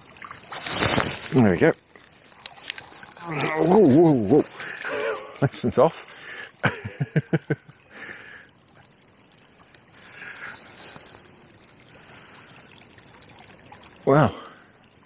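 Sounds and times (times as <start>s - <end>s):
river water flowing: 0.0s - 15.0s
fishing reel ticking: 1.2s - 5.2s, 9.7s - 12.5s.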